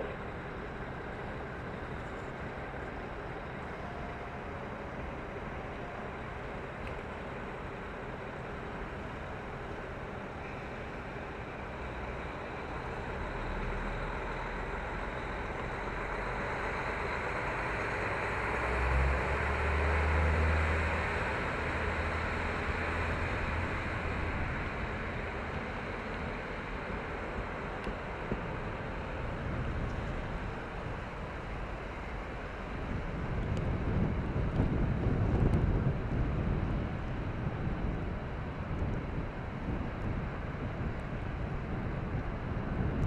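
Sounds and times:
train wheel and running noise: 0:00.0 - 0:43.0
diesel engine revving: 0:13.3 - 0:27.6.

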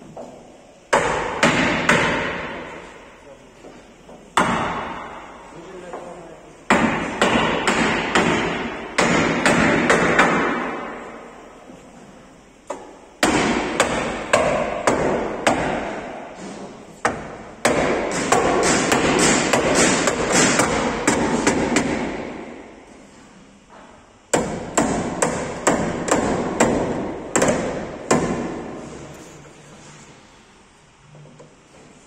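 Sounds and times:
hammer blows on sheet steel: 0:06.7 - 0:11.2, 0:13.2 - 0:22.8, 0:24.3 - 0:29.0.

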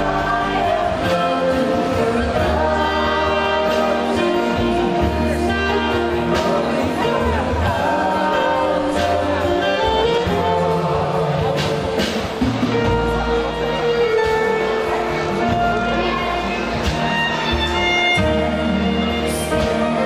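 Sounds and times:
woman and man singing: 0:00.0 - 0:12.4
acoustic guitar: 0:00.0 - 0:20.0
keyboard: 0:00.0 - 0:20.0
upright bass: 0:00.0 - 0:20.0
violins: 0:00.0 - 0:20.0.

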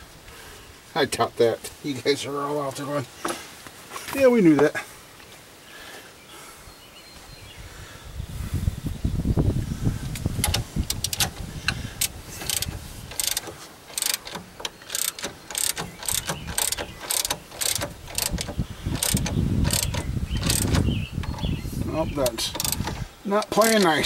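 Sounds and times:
ratchet wrench clicking: 0:10.4 - 0:11.4, 0:12.0 - 0:21.5, 0:22.5 - 0:23.9.

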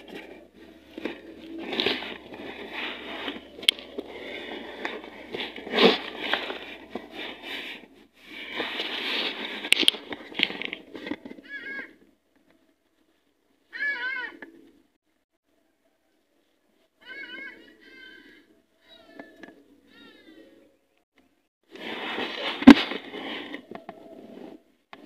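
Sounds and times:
crackling and rustling: 0:00.0 - 0:13.7, 0:21.6 - 0:25.0.

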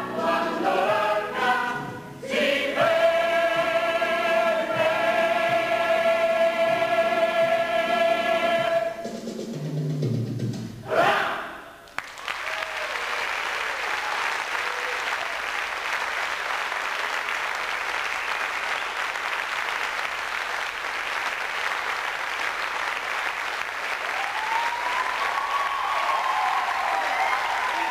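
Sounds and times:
audience applauding: 0:11.8 - 0:27.9.

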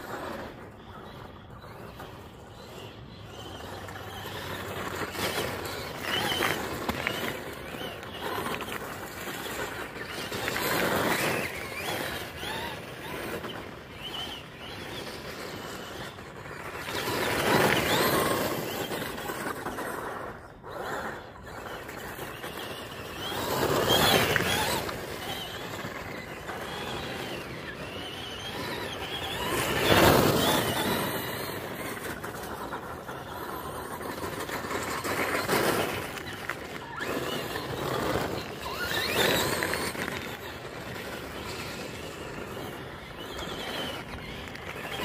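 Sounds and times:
tyres crunching over gravel: 0:03.5 - 0:45.0
electric motor whining: 0:21.3 - 0:45.0.

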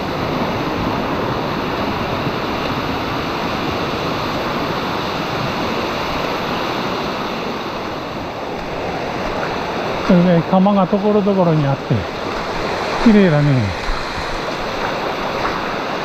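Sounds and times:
stream rushing over stones: 0:00.1 - 0:16.0.

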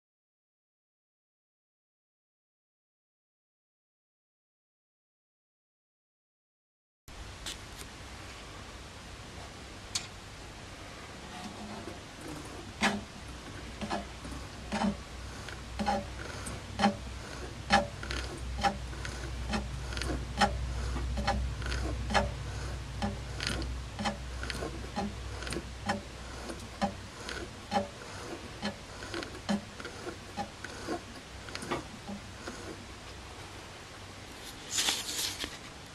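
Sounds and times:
lathe motor hum: 0:10.8 - 0:33.5.

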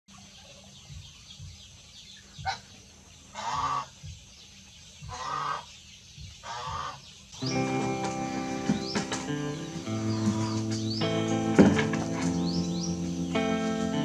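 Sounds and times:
ducks calling harshly: 0:02.4 - 0:04.1, 0:05.0 - 0:14.0.

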